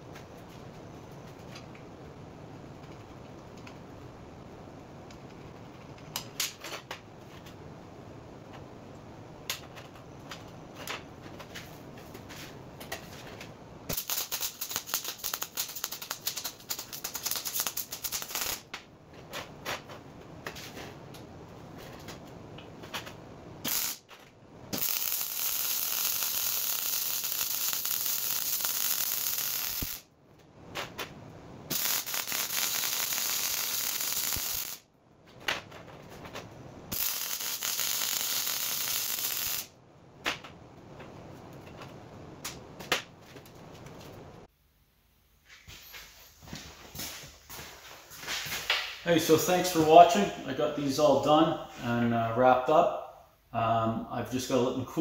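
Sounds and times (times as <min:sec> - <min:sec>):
welding arc crackling: 0:13.9 - 0:18.7, 0:23.6 - 0:24.1, 0:24.7 - 0:30.1, 0:31.7 - 0:34.9, 0:36.9 - 0:39.8.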